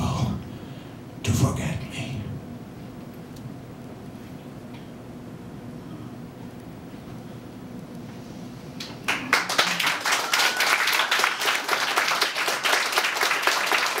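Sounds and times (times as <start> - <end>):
audience applause: 9.0 - 14.0.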